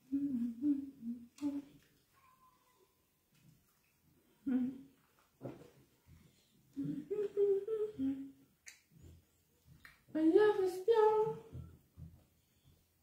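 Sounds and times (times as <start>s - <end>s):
person humming: 0.0s - 1.8s, 4.4s - 4.9s, 6.7s - 8.4s.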